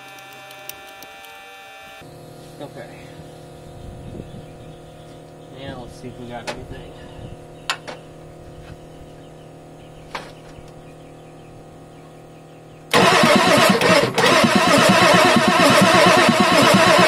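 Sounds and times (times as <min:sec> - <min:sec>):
electric fuel pump humming: 0:00.0 - 0:10.9, 0:12.9 - 0:17.0
diesel engine cranking: 0:12.9 - 0:17.0.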